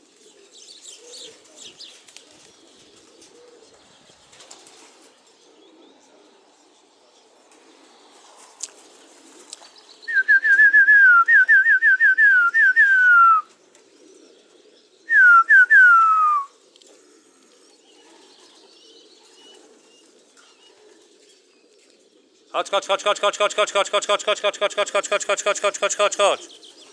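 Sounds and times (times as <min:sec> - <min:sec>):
person whistling: 0:10.1 - 0:13.5, 0:15.1 - 0:16.5.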